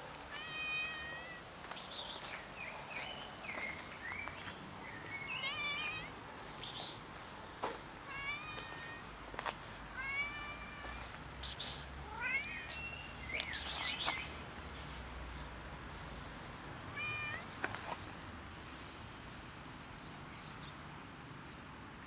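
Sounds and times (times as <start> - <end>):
cat meowing: 0.3 - 1.4, 5.4 - 6.1, 8.1 - 9.0, 9.9 - 11.0, 12.0 - 12.9, 17.0 - 17.5.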